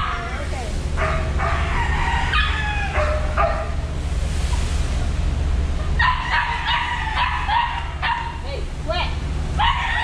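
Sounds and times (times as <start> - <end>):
dog yelping: 0.0 - 0.4, 1.0 - 3.8, 6.0 - 8.4, 9.6 - 10.0
low engine drone: 0.0 - 10.0
roosters crowing: 1.0 - 4.0, 5.9 - 8.4, 9.5 - 10.0.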